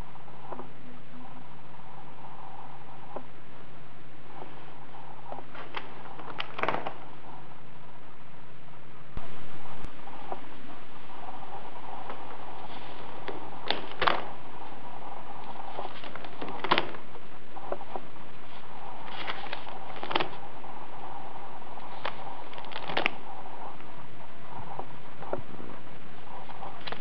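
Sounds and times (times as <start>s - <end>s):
steady background hiss: 0.0s - 27.0s
book pages rustling: 5.4s - 7.1s, 12.0s - 14.7s, 15.4s - 20.5s, 21.8s - 23.3s, 26.4s - 27.0s.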